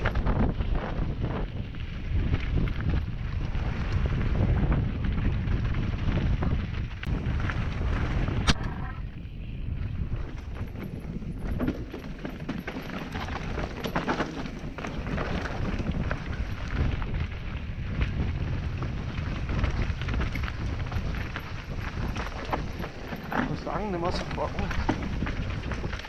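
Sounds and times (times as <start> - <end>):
bike rattling over bumps: 0.0 - 26.0
wind buffeting microphone: 0.0 - 26.0
tyres crunching over stones: 10.2 - 26.0.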